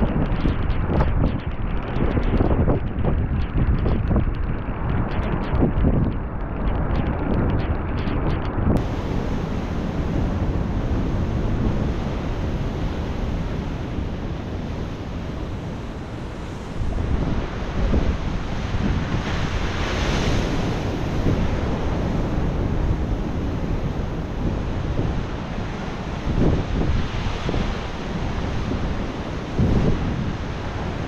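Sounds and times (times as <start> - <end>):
wind buffeting the microphone: 0.0 - 31.0
ocean surf washing in: 8.7 - 31.0.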